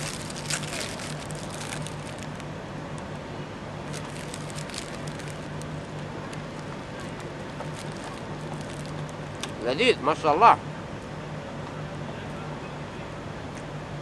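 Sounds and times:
crisp bread crackling when bitten: 0:00.0 - 0:02.5, 0:03.9 - 0:09.2
low hum of city traffic: 0:00.0 - 0:14.0.

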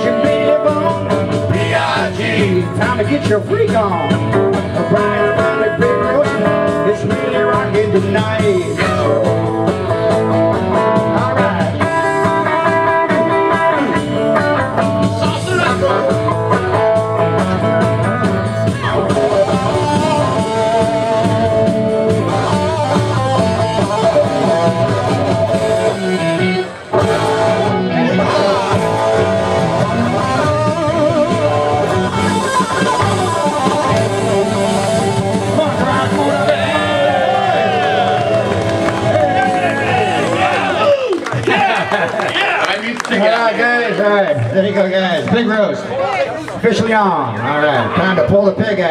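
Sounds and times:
group of voices singing: 0:00.0 - 0:03.0, 0:27.9 - 0:30.0
guitar playing: 0:00.0 - 0:40.9.

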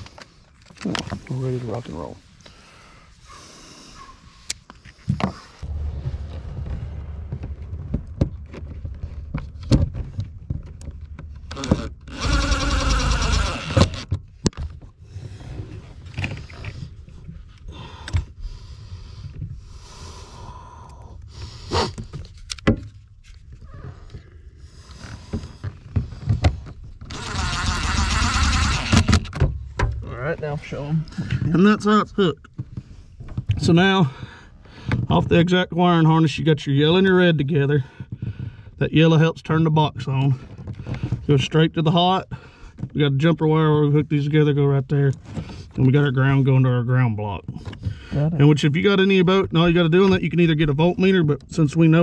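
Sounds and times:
steady low rumble: 0:05.4 - 0:12.1
small electric motor whirring: 0:11.6 - 0:14.1, 0:27.1 - 0:29.2.

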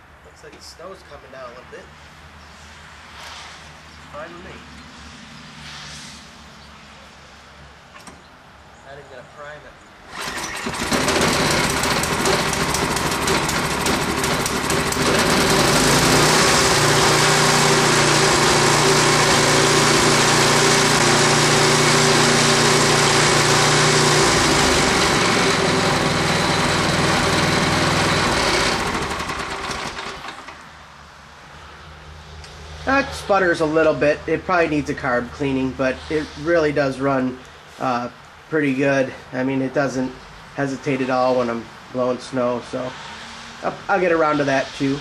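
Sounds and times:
snowblower engine running: 0:10.1 - 0:30.7.

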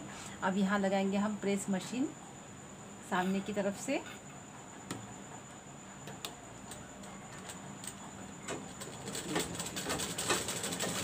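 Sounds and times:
sewing machine ticking and clicking: 0:08.8 - 0:11.0.

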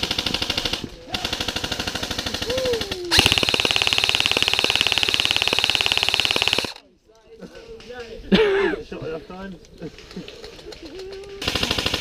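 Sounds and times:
airsoft rifle firing full auto: 0:00.0 - 0:06.8, 0:11.4 - 0:12.0.

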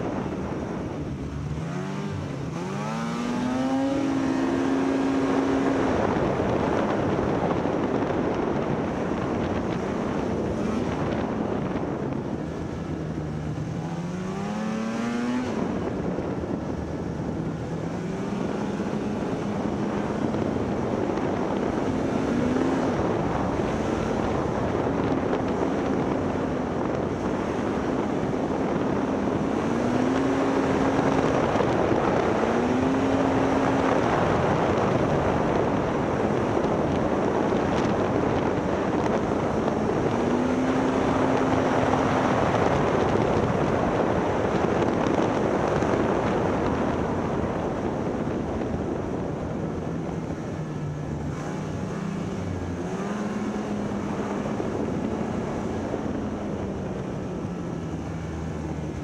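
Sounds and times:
snowmobile engine: 0:00.0 - 0:59.0
wind on microphone: 0:00.0 - 0:59.0.

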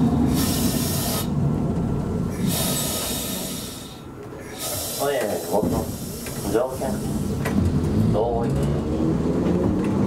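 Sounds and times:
streetcar wheels rumbling on rails: 0:00.0 - 0:10.0
hiss bursts: 0:00.3 - 0:01.3, 0:02.4 - 0:07.4.

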